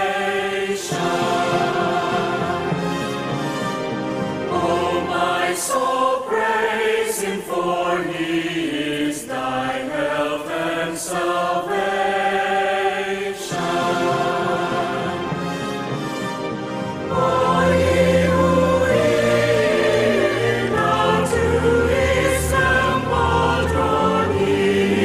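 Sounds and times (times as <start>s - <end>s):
mixed choir singing in harmony: 0.0s - 25.0s.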